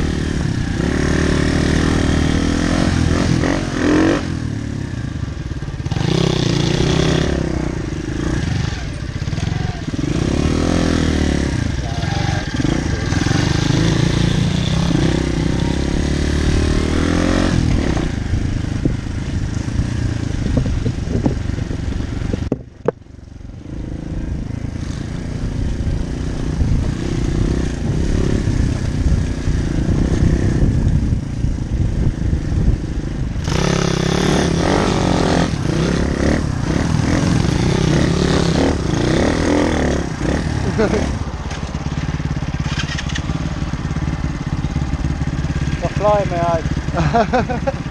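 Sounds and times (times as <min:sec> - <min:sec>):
small motorbike engines revving: 0:00.0 - 0:47.9
bike rattling over rough ground: 0:24.7 - 0:47.9.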